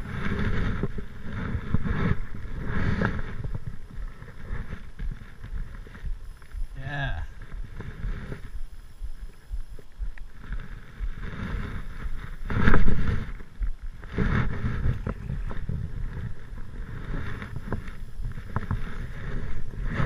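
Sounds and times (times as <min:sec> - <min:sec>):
wind buffeting microphone: 0:00.0 - 0:20.0
faint clicks: 0:07.4 - 0:19.7.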